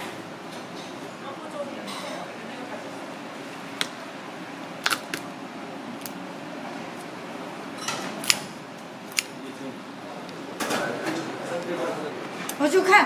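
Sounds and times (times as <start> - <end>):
steady background hum: 0.0 - 13.0
scissors cutting crab shell: 4.8 - 5.2, 9.1 - 9.4.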